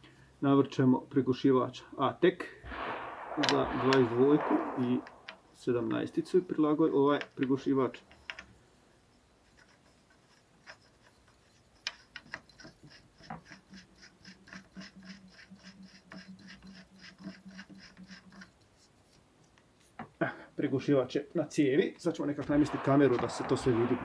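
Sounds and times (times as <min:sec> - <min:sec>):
metal threads ticking: 0:09.5 - 0:18.7.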